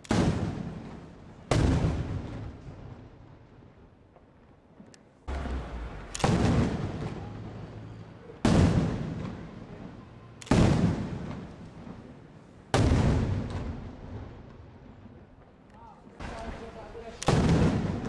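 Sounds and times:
firework shells bursting: 0:05.3 - 0:07.7, 0:16.2 - 0:18.0.

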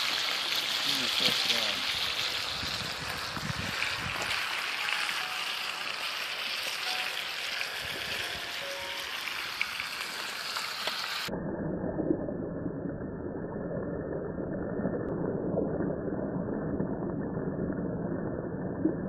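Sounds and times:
meat sizzling and crackling: 0:00.0 - 0:11.3
muffled low rumbling: 0:11.3 - 0:19.0.

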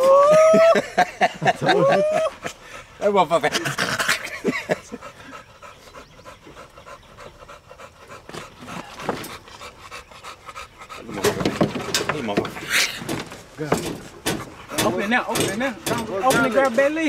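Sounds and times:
dog panting: 0:02.3 - 0:13.0, 0:14.1 - 0:17.0.

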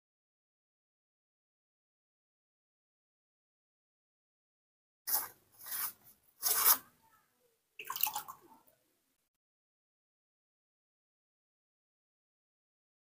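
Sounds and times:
glove and cloth rubbing on skin: 0:05.1 - 0:06.9.

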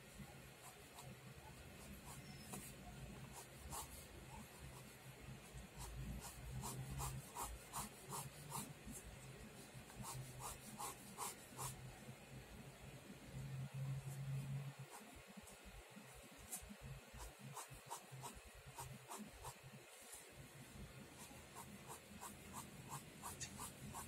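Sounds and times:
pen scratching on paper: 0:00.5 - 0:11.8, 0:14.0 - 0:15.6, 0:16.3 - 0:20.1, 0:21.1 - 0:24.0.

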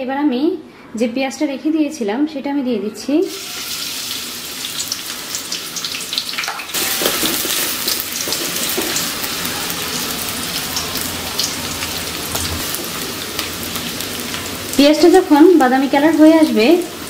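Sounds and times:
onions sizzling in hot oil: 0:03.3 - 0:17.0
wooden spatula stirring in pot: 0:06.8 - 0:09.2.

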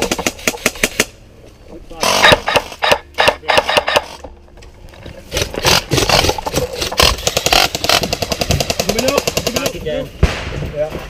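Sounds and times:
airsoft guns firing: 0:02.0 - 0:04.1.

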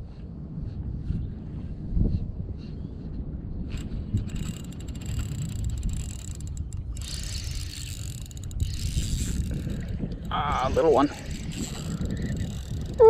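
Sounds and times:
wind on microphone: 0:00.0 - 0:13.0
fishing reel whirring and clicking: 0:03.7 - 0:13.0.

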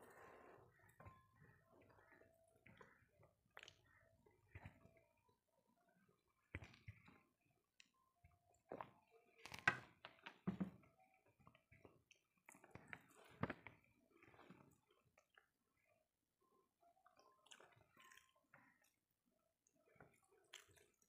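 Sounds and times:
chewing: 0:00.7 - 0:05.0, 0:11.5 - 0:15.9, 0:17.0 - 0:19.0, 0:19.6 - 0:21.0.

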